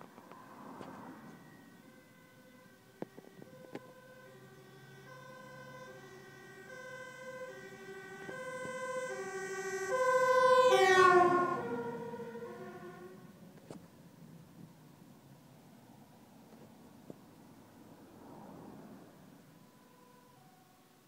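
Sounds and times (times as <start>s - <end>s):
fire engine two-tone siren: 0.2s - 13.4s, 19.3s - 21.0s.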